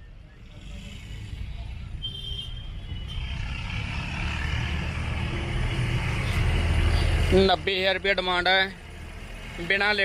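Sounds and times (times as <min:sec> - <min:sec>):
vehicle engine approaching: 0:03.0 - 0:09.9.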